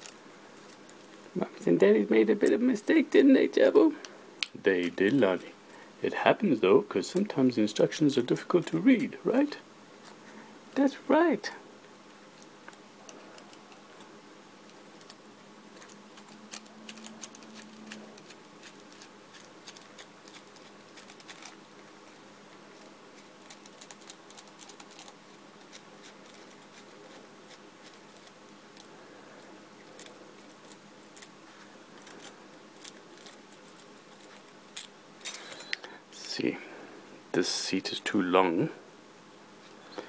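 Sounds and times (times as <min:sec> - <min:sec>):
small metal parts clicking: 0:15.8 - 0:21.6.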